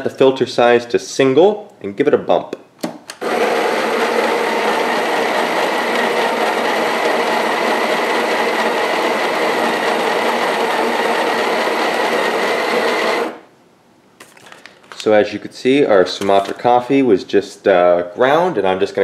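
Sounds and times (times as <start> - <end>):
coffee grinder whirring: 3.2 - 13.4.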